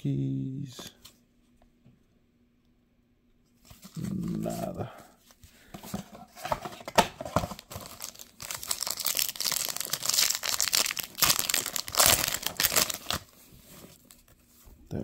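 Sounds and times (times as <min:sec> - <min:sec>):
foil wrapper crinkling: 0:07.4 - 0:13.4.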